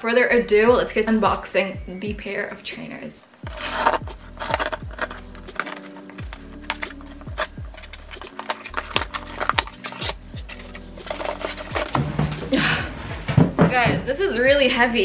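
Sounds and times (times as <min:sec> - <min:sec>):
cardboard box being opened: 0:03.4 - 0:12.1
background music with a beat: 0:03.4 - 0:12.5
cardboard rustles and knocks: 0:03.5 - 0:14.0.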